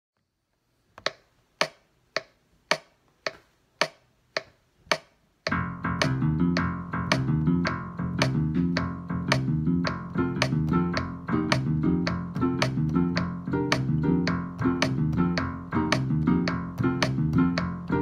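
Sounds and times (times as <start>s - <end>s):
metronome clicking: 1.0s - 18.0s
piano playing: 5.5s - 18.0s.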